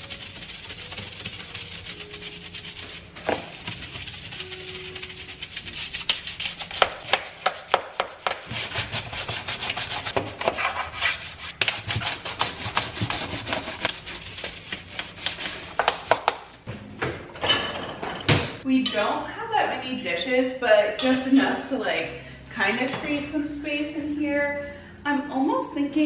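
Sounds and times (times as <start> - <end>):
brush scrubbing wet tile: 0.0 - 16.5.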